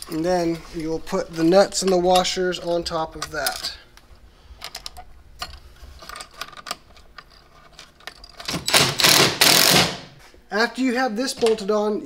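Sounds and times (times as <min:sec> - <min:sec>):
metal nuts and washers clinking: 0:03.2 - 0:03.8
loud burst of noise: 0:08.7 - 0:10.1.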